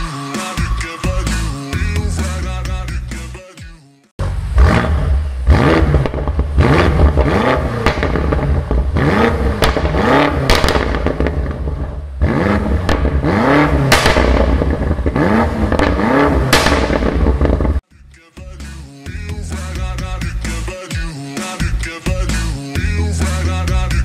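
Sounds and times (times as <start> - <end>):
car engine revving: 4.2 - 17.8
exhaust pops and crackles: 4.2 - 17.8.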